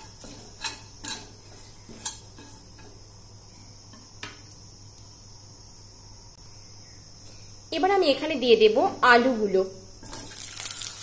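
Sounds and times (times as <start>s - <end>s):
spatula scraping a pan: 0.0s - 3.1s
hot oil hissing: 10.0s - 11.0s.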